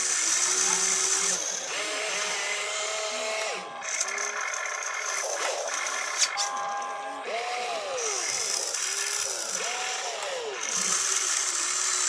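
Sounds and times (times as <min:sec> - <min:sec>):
small electric motors whining: 0:00.0 - 0:12.0.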